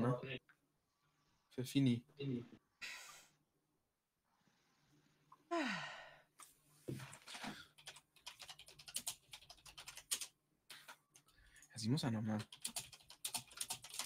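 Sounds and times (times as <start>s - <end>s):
person sighing: 5.4s - 6.3s
computer keyboard typing: 7.7s - 11.7s, 12.3s - 14.0s.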